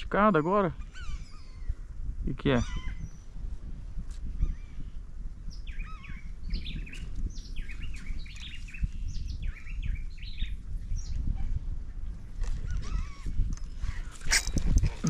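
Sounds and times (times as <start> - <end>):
birds chirping: 0.2 - 1.9, 2.5 - 3.3, 5.5 - 11.3.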